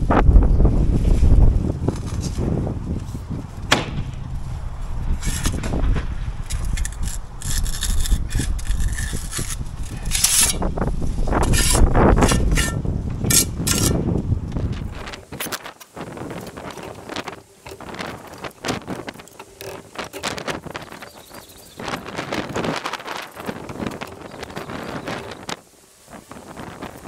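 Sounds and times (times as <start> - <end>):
wind rumbling on microphone: 0.0 - 27.0
trowel scraping concrete blocks: 5.2 - 5.8, 6.5 - 14.1.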